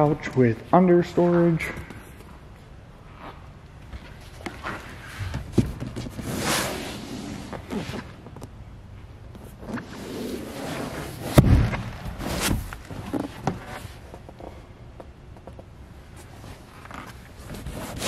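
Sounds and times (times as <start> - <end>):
loud thud: 11.3 - 12.7.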